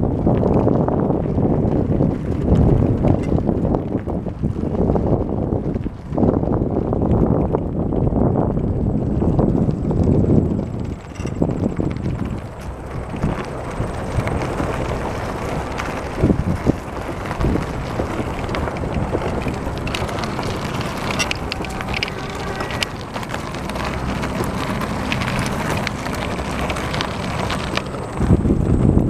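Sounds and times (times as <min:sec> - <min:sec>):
bicycle tyres on gravel: 0:00.0 - 0:29.0
bike clicks and rattles: 0:00.0 - 0:29.0
wind noise on microphone: 0:00.0 - 0:29.0.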